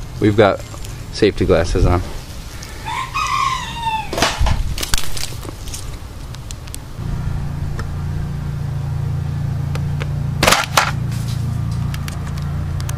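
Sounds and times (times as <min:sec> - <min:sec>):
steady low drone: 0:05.7 - 0:12.9.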